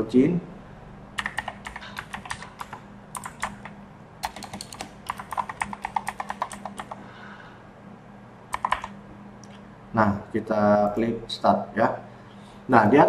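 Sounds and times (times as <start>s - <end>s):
faint steady hum: 0.0s - 13.0s
keyboard typing: 1.2s - 7.0s, 8.5s - 9.6s.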